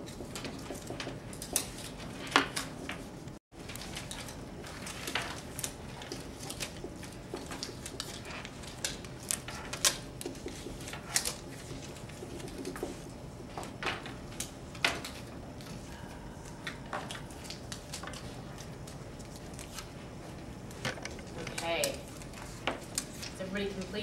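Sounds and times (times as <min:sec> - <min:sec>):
pens and paper clicks and rustles: 0:00.0 - 0:24.0.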